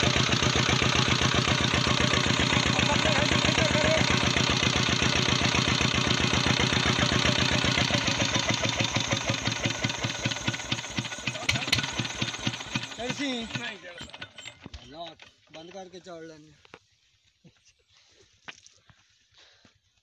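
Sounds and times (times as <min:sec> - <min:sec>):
diesel engine running: 0:00.0 - 0:14.7.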